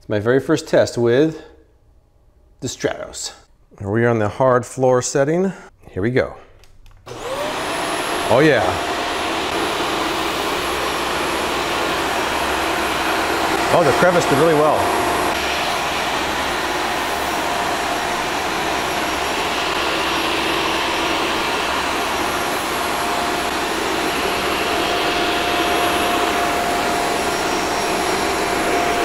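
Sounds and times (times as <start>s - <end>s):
upright vacuum cleaner running: 7.1s - 29.0s.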